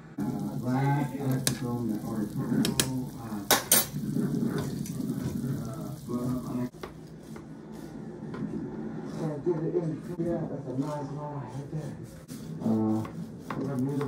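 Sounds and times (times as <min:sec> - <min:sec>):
soup boiling in pot: 0:00.1 - 0:07.3.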